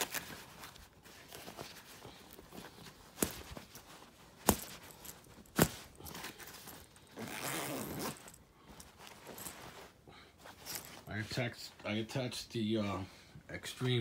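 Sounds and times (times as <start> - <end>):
zipper rasping: 4.5 - 9.7
zipper clicks: 7.2 - 8.4.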